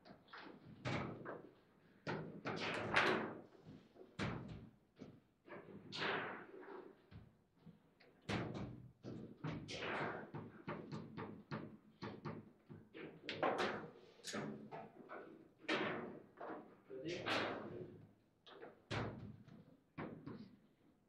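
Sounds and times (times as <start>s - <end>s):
table football clacks and knocks: 7.1s - 16.7s, 17.3s - 20.6s.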